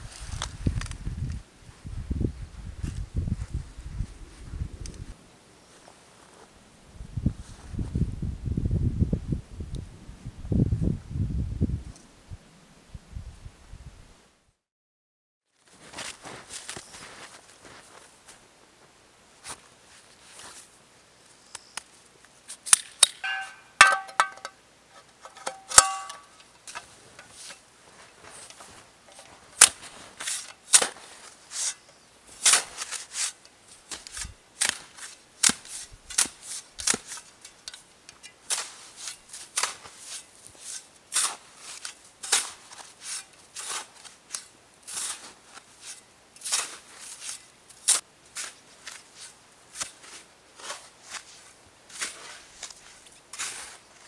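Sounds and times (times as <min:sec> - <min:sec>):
boots crunching in snow: 0:15.6 - 0:20.7, 0:26.9 - 0:31.6, 0:44.9 - 0:47.5, 0:48.3 - 0:54.0.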